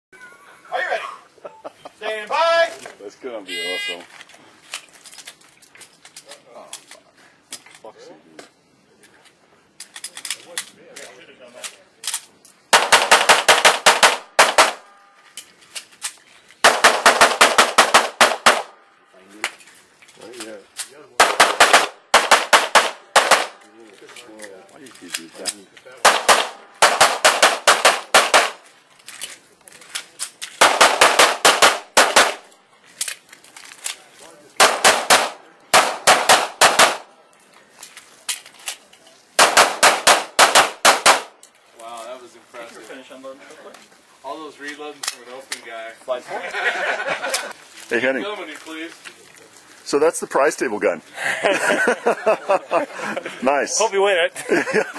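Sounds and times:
rapid pistol shots: 12.7s - 14.8s, 16.6s - 18.8s, 21.2s - 23.6s, 26.0s - 28.6s, 30.6s - 32.4s, 34.6s - 37.1s, 39.4s - 41.4s.

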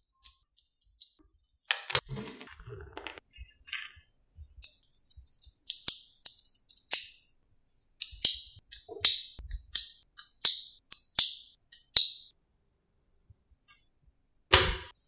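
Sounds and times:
magnetic balls clicking together: 0.2s - 1.2s, 4.6s - 7.3s, 8.0s - 12.3s.

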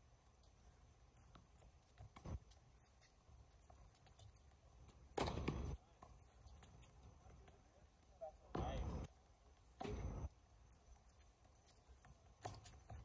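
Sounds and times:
tennis ball bounces: 4.9s - 6.9s, 9.7s - 10.3s
racket strikes: 5.1s - 5.8s.

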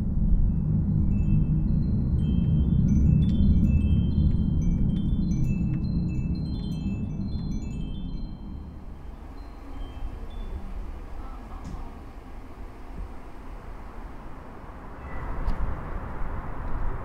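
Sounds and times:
deep low rumble: 0.0s - 17.0s
tinkling bell-like chimes: 0.2s - 11.5s.

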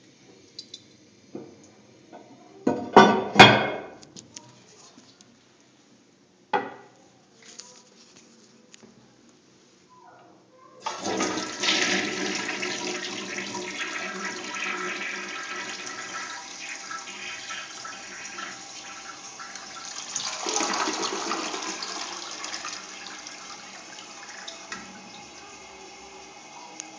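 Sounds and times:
toilet flushing: 10.8s - 26.9s
water running: 10.8s - 26.9s.

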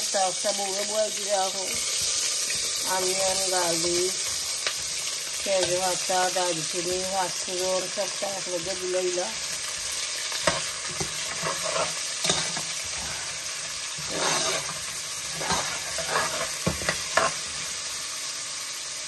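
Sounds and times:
onions sizzling in a pot: 0.0s - 19.0s
metal spoon scraping a pot: 9.7s - 17.5s.

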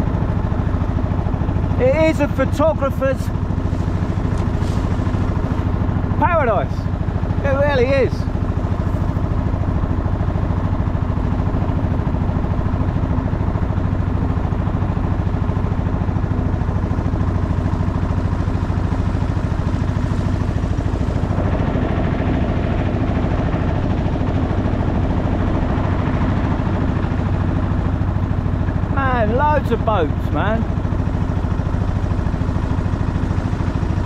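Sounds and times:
boat engine droning: 0.0s - 34.0s.

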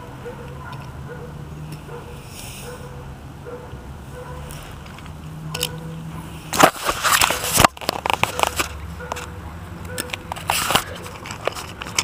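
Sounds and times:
camera handling rustling: 6.5s - 9.3s, 9.9s - 12.0s.

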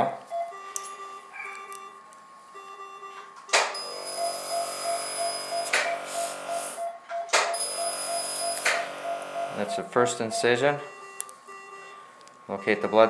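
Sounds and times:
laser pulsing beep tone: 3.8s - 12.0s.

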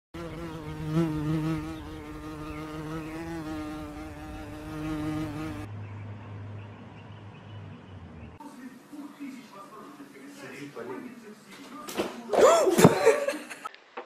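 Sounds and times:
flying insect buzzing: 0.2s - 5.7s.

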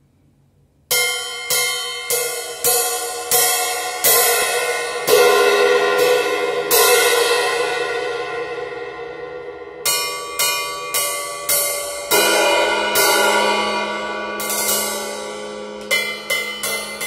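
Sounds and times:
cymbal struck with drumstick: 9.8s - 17.0s.

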